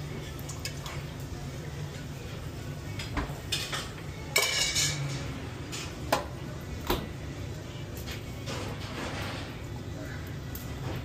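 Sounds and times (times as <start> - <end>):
metal utensils clanging on pans: 0.1 - 1.2, 2.9 - 6.4, 7.9 - 11.0.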